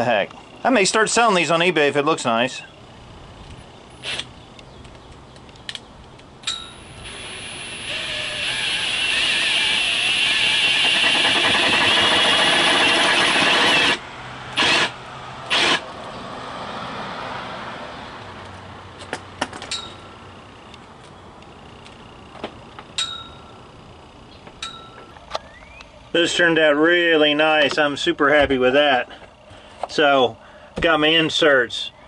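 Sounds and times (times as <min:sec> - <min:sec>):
cordless drill cutting rubber: 0:07.0 - 0:14.0, 0:14.6 - 0:15.8.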